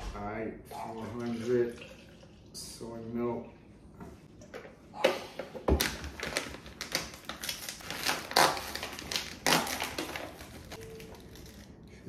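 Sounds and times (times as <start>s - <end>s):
plastic pouch crinkling: 6.1s - 11.8s.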